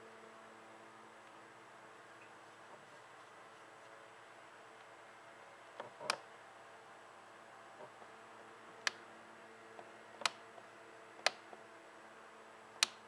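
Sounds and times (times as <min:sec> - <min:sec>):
faint electrical hum: 0:00.0 - 0:13.0
sharp clicks: 0:12.8 - 0:13.0.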